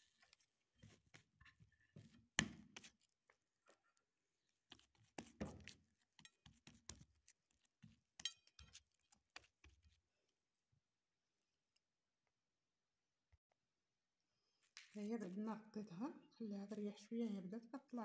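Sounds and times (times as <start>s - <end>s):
hands handling dough: 0.0s - 12.4s, 14.6s - 15.7s.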